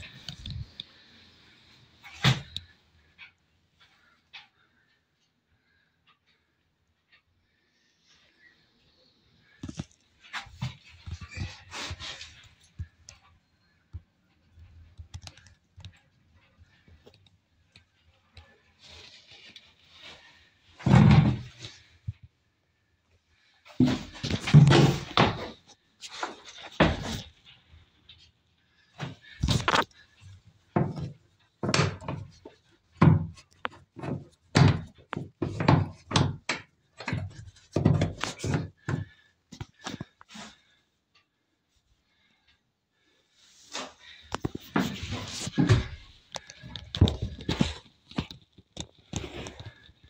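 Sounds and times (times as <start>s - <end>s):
faint clicks and light knocks: 9.6s - 20.2s
dull knocks and thumps: 33.0s - 39.2s.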